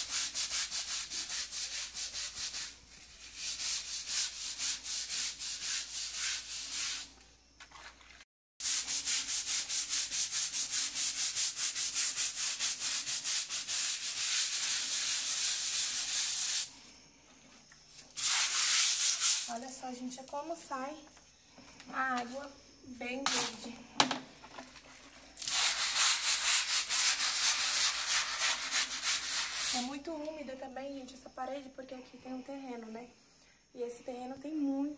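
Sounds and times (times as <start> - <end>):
brush scrubbing wet wall: 0.0 - 16.7, 18.1 - 19.6, 24.8 - 30.0.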